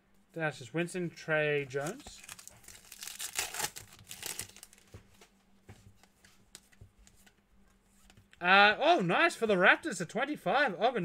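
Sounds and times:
cards rustling and ticking: 1.7s - 8.4s
foil pack tearing and crinkling: 1.8s - 4.8s.

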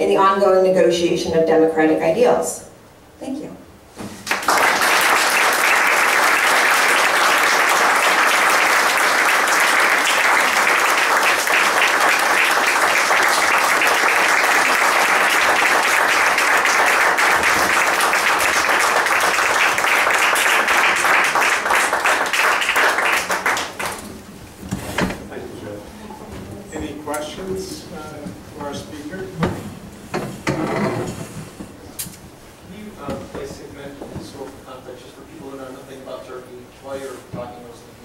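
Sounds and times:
audience applauding: 4.2s - 24.1s.

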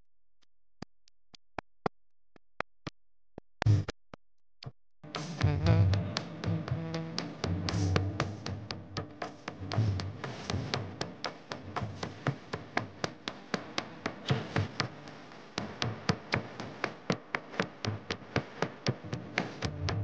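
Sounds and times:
rhythmic percussion tapping: 5.0s - 20.0s.

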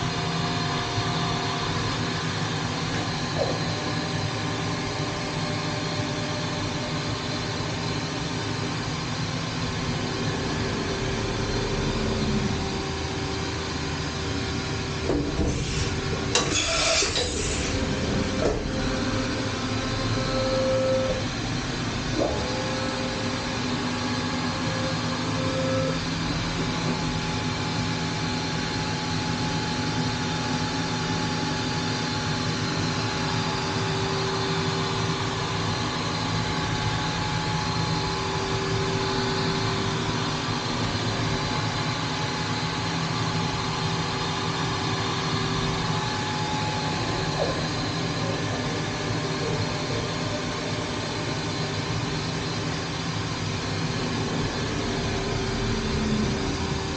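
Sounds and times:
machine hum: 0.0s - 56.9s
axis drives whining: 9.6s - 29.2s.

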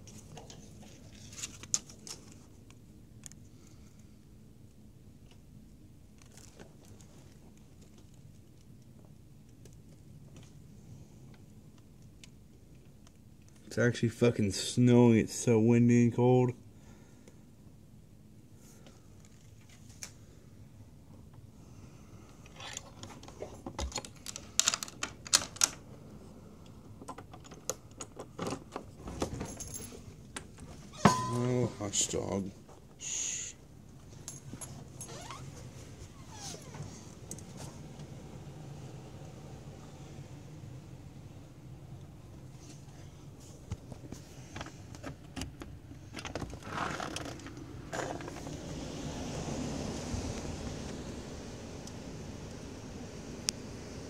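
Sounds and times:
low steady background noise: 0.0s - 54.0s
latch clicks and rattles: 23.0s - 25.8s
door scraping open: 34.8s - 38.4s, 46.3s - 48.9s
storm wind rushing: 47.6s - 54.0s.

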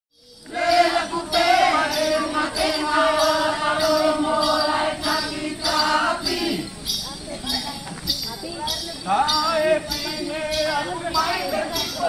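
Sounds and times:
group chanting: 0.5s - 6.8s, 9.4s - 12.0s.

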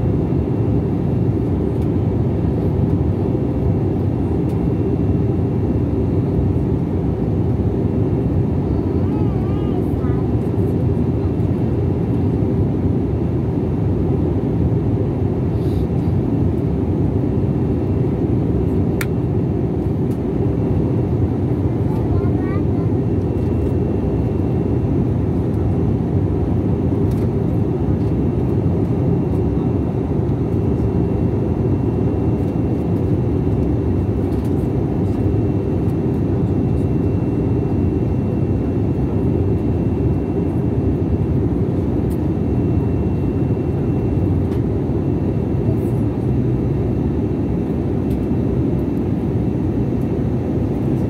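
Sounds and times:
jet cabin engine rumble: 0.0s - 51.0s.

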